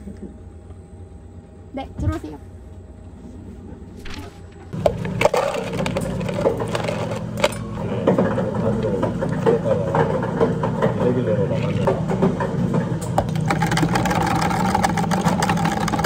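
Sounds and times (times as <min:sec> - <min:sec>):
ice cubes clinking in cup: 0:04.8 - 0:07.8, 0:13.3 - 0:16.0.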